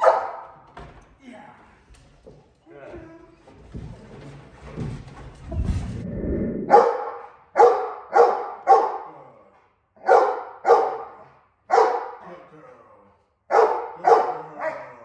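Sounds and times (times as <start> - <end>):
dog barking: 0.0 - 0.6, 6.7 - 9.2, 10.0 - 12.2, 13.5 - 15.0
low rumbling noise: 5.4 - 6.9.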